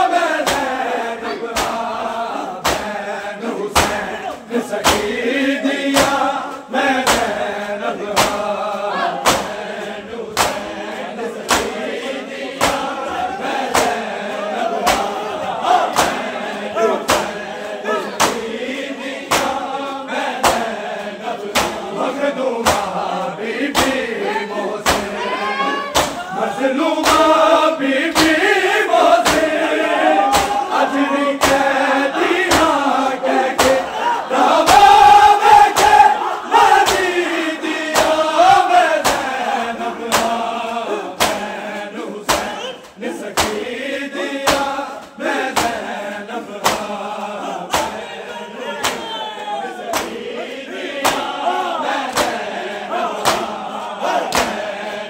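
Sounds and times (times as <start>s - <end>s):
men chanting in chorus: 0.0s - 55.0s
hands beating on chests: 0.4s - 0.8s, 1.5s - 2.0s, 2.6s - 3.0s, 3.7s - 5.2s, 5.8s - 6.3s, 7.0s - 7.5s, 8.1s - 11.8s, 12.5s - 14.1s, 14.7s - 17.5s, 18.2s - 18.5s, 19.2s - 19.7s, 20.4s - 20.8s, 21.5s - 21.9s, 22.6s - 23.0s, 23.7s - 24.0s, 24.8s - 25.2s, 25.9s - 26.3s, 27.0s - 27.4s, 28.1s - 28.4s, 29.1s - 37.2s, 37.8s - 41.6s, 42.2s - 43.7s, 44.4s - 44.8s, 45.4s - 45.9s, 46.6s - 46.9s, 47.7s - 48.2s, 48.8s - 49.2s, 49.9s - 50.2s, 51.0s - 52.6s, 53.2s - 54.7s.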